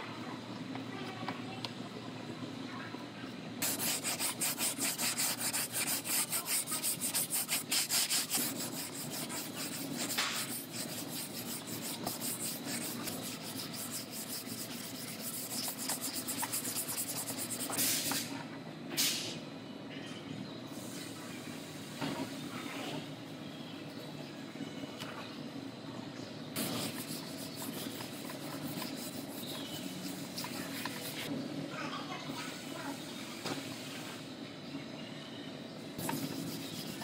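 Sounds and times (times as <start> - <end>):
sanding pad scratching on filler: 3.6 - 17.8, 26.6 - 31.3, 36.0 - 37.0.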